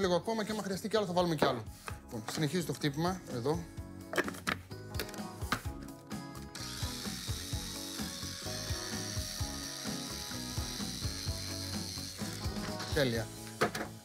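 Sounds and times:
background music: 0:00.0 - 0:14.0
chopper motor whirring: 0:06.6 - 0:12.6.

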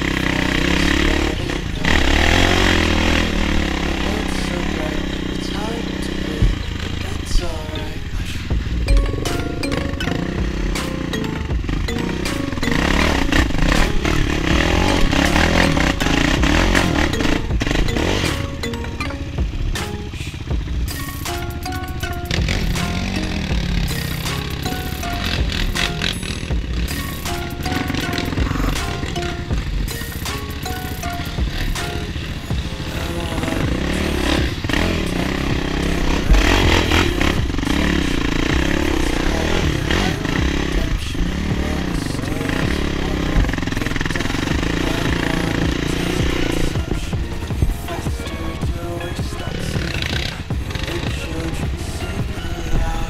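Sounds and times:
background music: 0:00.0 - 0:53.0
quad bike engine revving: 0:00.0 - 0:53.0
heavy low thump: 0:08.5 - 0:10.8.

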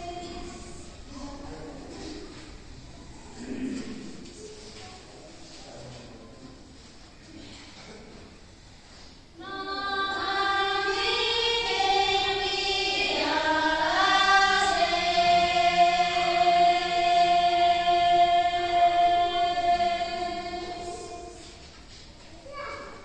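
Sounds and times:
women singing unaccompanied: 0:00.0 - 0:00.9, 0:09.4 - 0:21.6.

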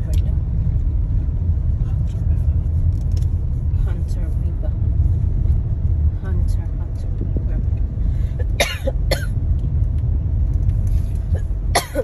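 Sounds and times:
car cabin road rumble: 0:00.0 - 0:12.0
person coughing: 0:08.4 - 0:09.3, 0:11.4 - 0:12.0.

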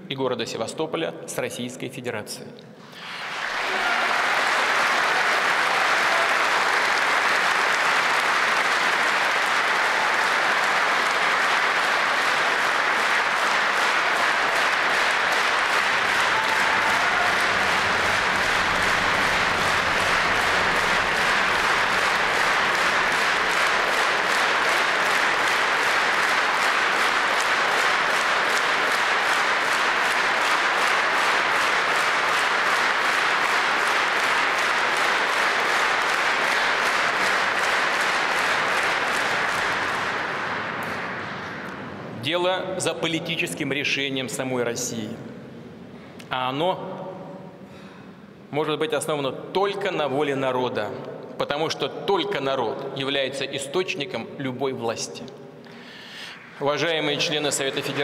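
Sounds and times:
large audience applauding: 0:02.8 - 0:42.2, 0:55.6 - 0:58.0.

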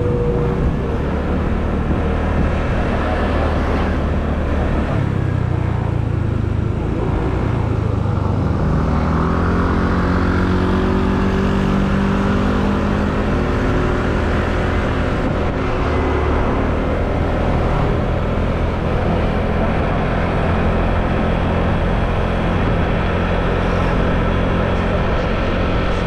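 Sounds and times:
wind on microphone: 0:00.0 - 0:05.4, 0:13.6 - 0:26.0
road rumble: 0:00.0 - 0:26.0.

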